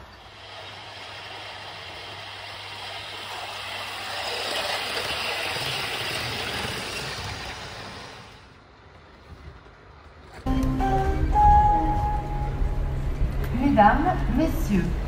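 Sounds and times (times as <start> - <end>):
model train running past: 0.0 - 8.9.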